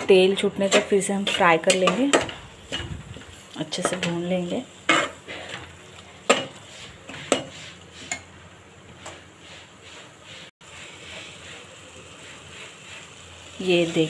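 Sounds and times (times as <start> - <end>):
paste sizzling in oil: 0.0 - 14.0
spoon scraping metal pot: 6.3 - 8.3.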